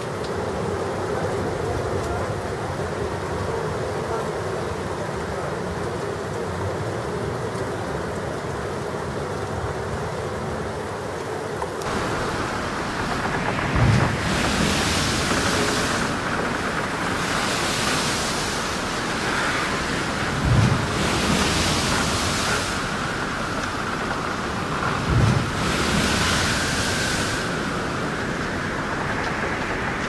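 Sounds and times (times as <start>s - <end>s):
water rushing past boat hull: 11.8s - 30.0s
wind buffeting microphone: 11.8s - 30.0s.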